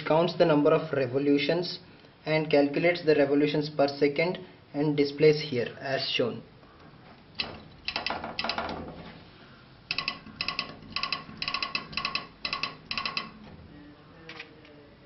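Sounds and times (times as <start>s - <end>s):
current meter wheel clicking: 7.4s - 8.8s, 9.9s - 13.5s.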